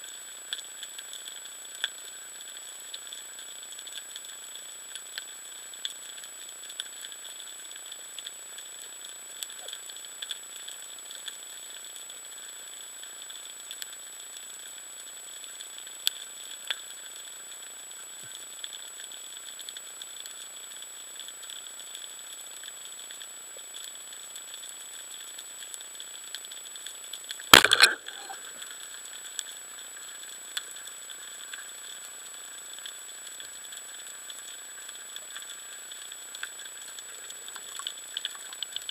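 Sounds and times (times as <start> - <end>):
faint clicks: 18.2 - 38.9
speargun firing crack: 27.6 - 28.3.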